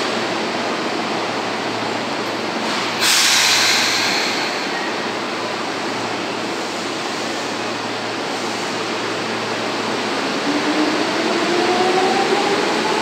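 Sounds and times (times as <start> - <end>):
train air hiss: 2.6 - 5.4.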